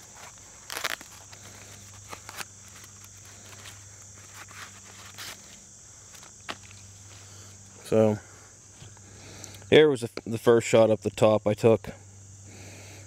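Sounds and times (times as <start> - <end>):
tape crackle: 0.0 - 7.2
high insect drone: 0.0 - 13.0.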